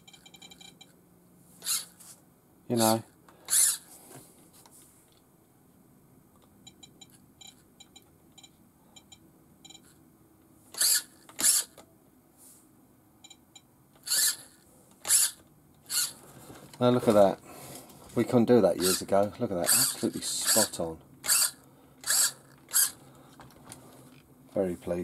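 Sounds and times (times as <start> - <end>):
servo whirring: 1.6 - 2.1, 3.4 - 4.0, 10.7 - 11.8, 14.0 - 16.2, 18.8 - 23.0.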